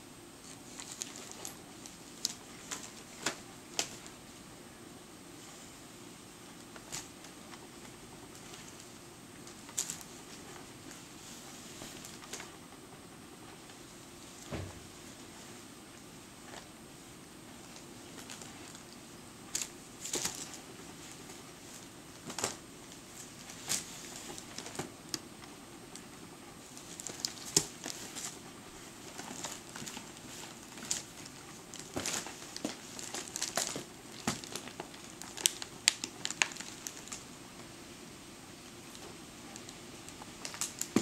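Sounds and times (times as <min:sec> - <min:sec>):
dog food bag crinkling: 0:26.7 - 0:28.4, 0:29.0 - 0:37.3.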